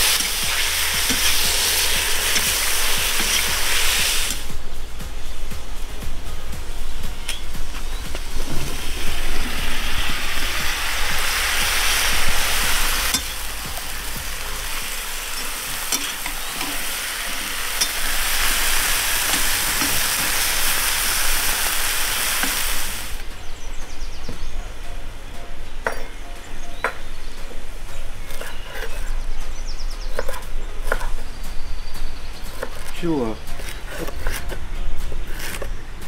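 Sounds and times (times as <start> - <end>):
potatoes sizzling in hot fat: 0.0 - 4.6, 7.7 - 23.3.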